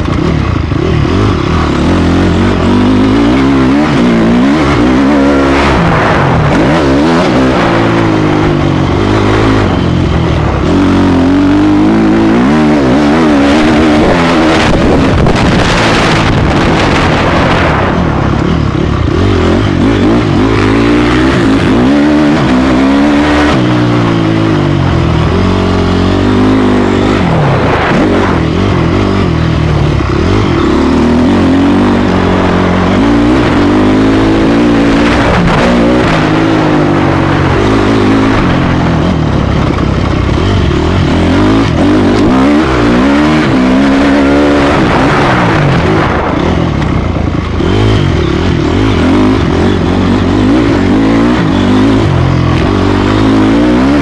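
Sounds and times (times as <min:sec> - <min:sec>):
motocross bike engine revving: 0:00.0 - 0:54.0.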